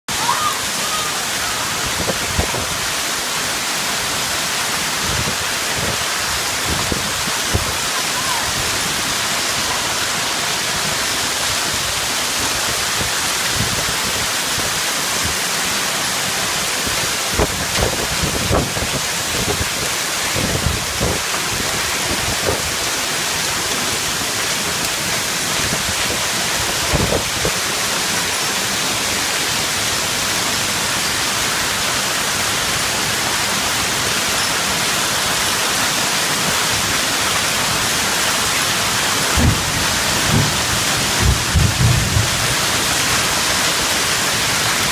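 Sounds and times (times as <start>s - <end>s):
heavy hail hissing: 0.1s - 44.9s
low thumps: 39.3s - 42.5s.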